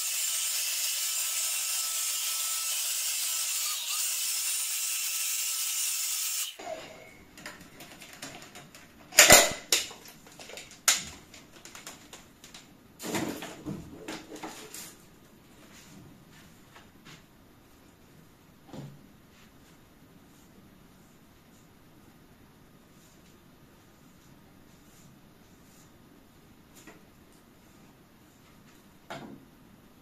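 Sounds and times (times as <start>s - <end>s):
knocks and clatters of handling: 7.3s - 15.0s.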